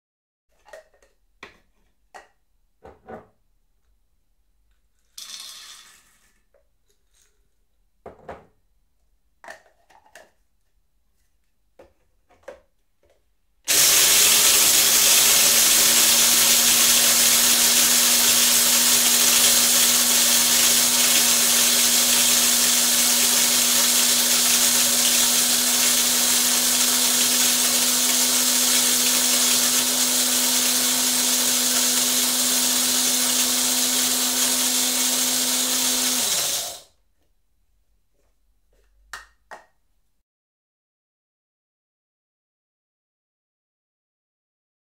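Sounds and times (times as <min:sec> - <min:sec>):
electric coffee grinder running: 0:13.7 - 0:36.9.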